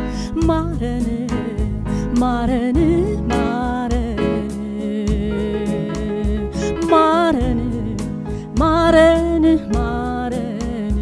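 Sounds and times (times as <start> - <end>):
person singing into microphone: 0.2 - 11.0
electronic keyboard chords and beat: 2.8 - 10.1.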